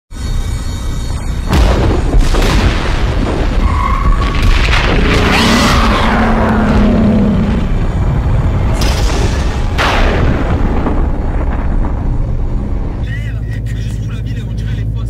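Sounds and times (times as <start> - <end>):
steady low rumble: 0.2 - 15.0
sudden hits: 1.5 - 6.1, 6.7 - 13.0
deep booms: 1.5 - 13.1.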